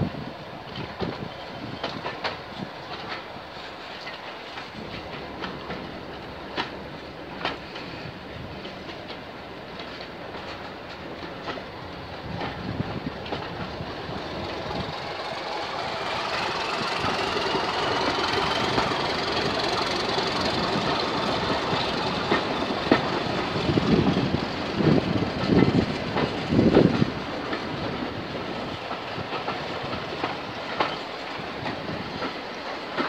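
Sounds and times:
train running noise: 0:00.0 - 0:33.0
train wheels clicking over joints: 0:00.6 - 0:33.0.

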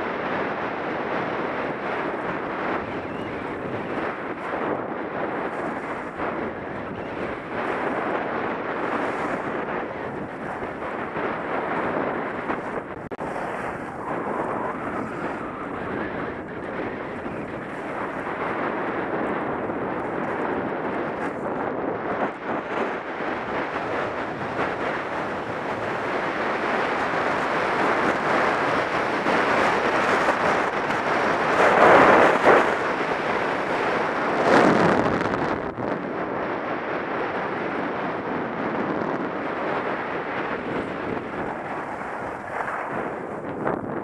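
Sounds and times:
wind on microphone: 0:00.0 - 0:44.0
skis sliding on packed snow: 0:40.8 - 0:43.6.

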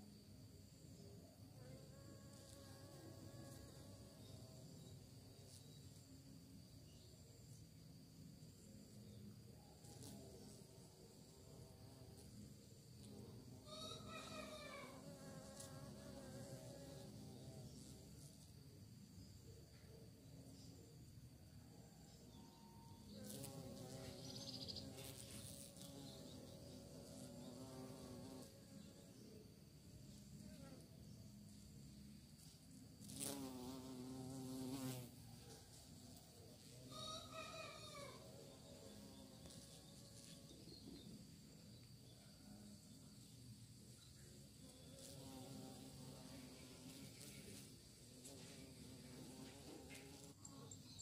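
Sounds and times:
insect chirring: 0:00.0 - 0:51.0
bee buzzing: 0:01.6 - 0:06.0, 0:09.9 - 0:18.5, 0:23.1 - 0:29.0, 0:32.3 - 0:35.2, 0:36.6 - 0:41.0, 0:44.4 - 0:51.0.

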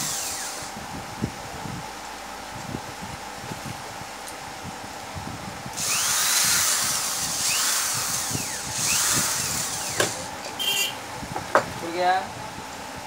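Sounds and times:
cordless drill motor whine: 0:00.0 - 0:00.8, 0:05.7 - 0:10.9.

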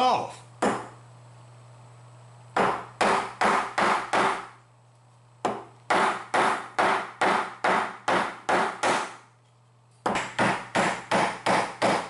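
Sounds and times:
chisel struck into wood: 0:00.6 - 0:00.9, 0:02.6 - 0:04.6, 0:05.4 - 0:09.2, 0:10.0 - 0:12.0.

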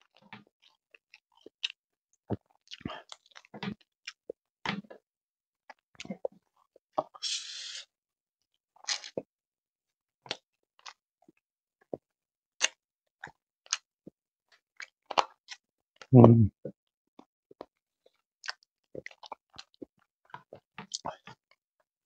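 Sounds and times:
wet chewing: 0:08.8 - 0:09.2, 0:14.8 - 0:15.6, 0:18.1 - 0:21.4.

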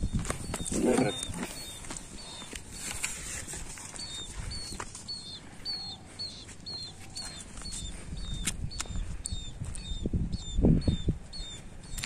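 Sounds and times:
animal high chirps: 0:04.0 - 0:12.0.

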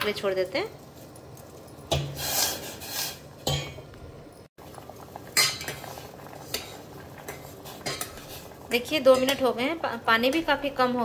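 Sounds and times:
spoon scraping steel saucepan: 0:01.9 - 0:03.4.

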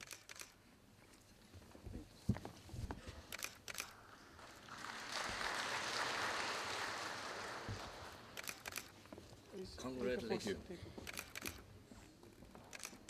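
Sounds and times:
camera shutters clicking: 0:00.0 - 0:00.6, 0:03.3 - 0:04.0, 0:08.4 - 0:09.0, 0:11.0 - 0:11.7, 0:12.7 - 0:13.0
audience applause: 0:04.0 - 0:08.4.

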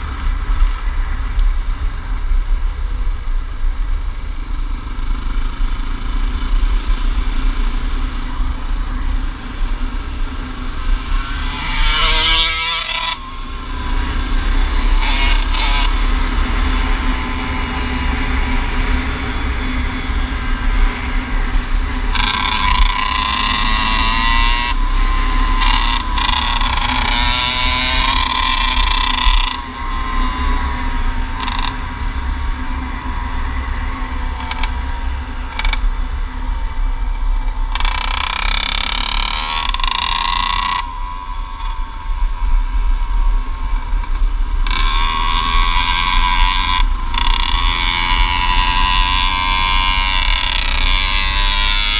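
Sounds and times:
wind rumble on microphone: 0:00.0 - 0:51.9
dirt bike engine revving: 0:10.5 - 0:33.7, 0:37.7 - 0:41.6, 0:44.6 - 0:51.9.

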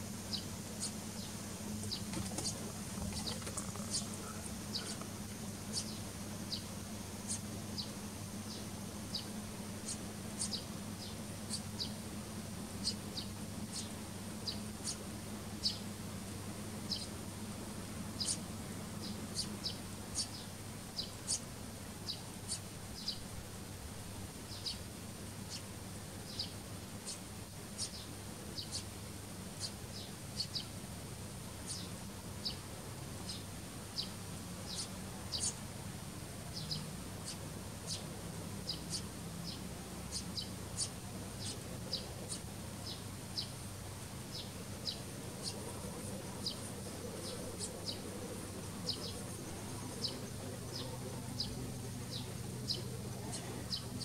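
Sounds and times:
steady high-pitched whine: 0:00.0 - 0:54.0
sparrows chirping: 0:00.2 - 0:12.1, 0:12.8 - 0:15.9, 0:16.8 - 0:17.5, 0:18.1 - 0:23.5, 0:24.4 - 0:30.8, 0:31.6 - 0:35.6, 0:36.4 - 0:54.0.

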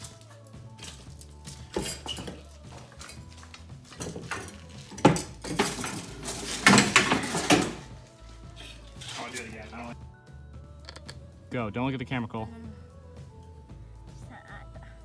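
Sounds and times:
metal objects clinking: 0:00.0 - 0:08.0, 0:10.8 - 0:11.2.

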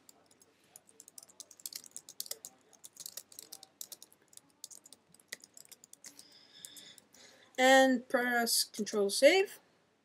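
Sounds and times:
typing on computer keyboard: 0:00.0 - 0:07.2.

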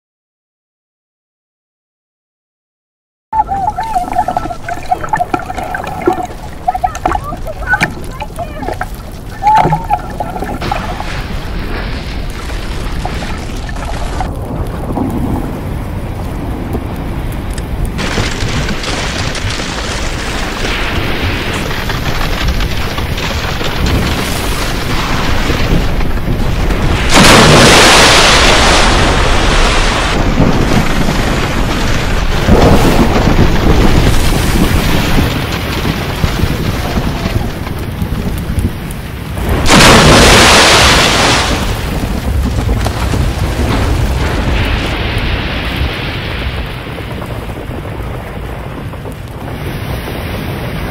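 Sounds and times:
waves crashing: 0:03.4 - 0:14.5, 0:23.9 - 0:47.1
rough ocean water rushing: 0:03.4 - 0:50.9.

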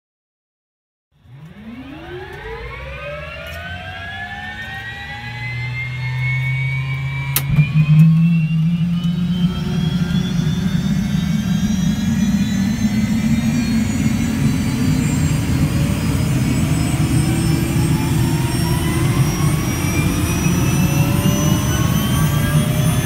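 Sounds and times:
helicopter turbine engine whine: 0:01.2 - 0:23.0.

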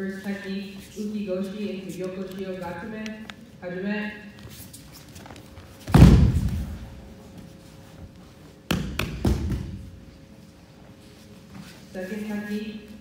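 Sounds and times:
bodies thudding on mats: 0:05.8 - 0:06.9.

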